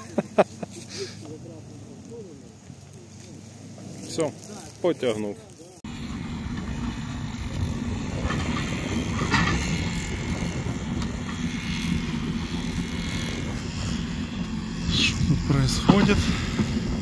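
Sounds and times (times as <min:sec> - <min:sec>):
vehicle engine running: 0:00.0 - 0:17.0.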